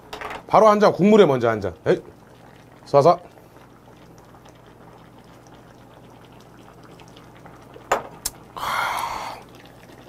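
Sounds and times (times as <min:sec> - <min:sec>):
pot simmering: 0:00.0 - 0:10.0
metal cup knocking on wooden table: 0:07.9 - 0:08.1.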